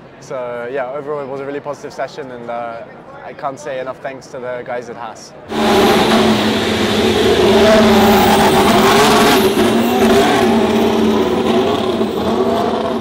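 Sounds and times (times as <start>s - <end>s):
racing car engine at low revs: 5.5s - 13.0s.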